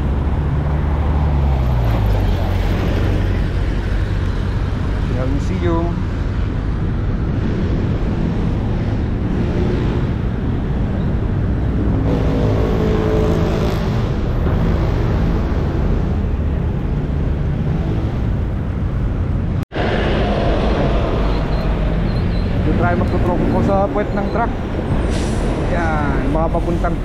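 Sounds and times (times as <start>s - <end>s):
road traffic: 0.0s - 27.0s
wind rushing on microphone: 16.1s - 27.0s.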